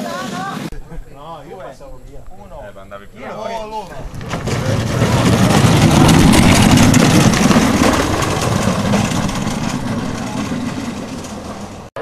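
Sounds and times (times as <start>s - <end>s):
cart wheels rumbling on asphalt: 3.6s - 12.0s.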